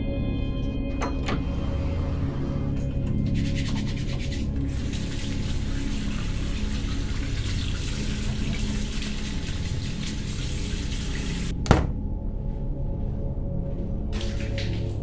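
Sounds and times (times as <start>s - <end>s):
low steady drone: 0.0s - 15.0s
faucet water splashing into sink: 3.4s - 11.5s, 14.2s - 15.0s.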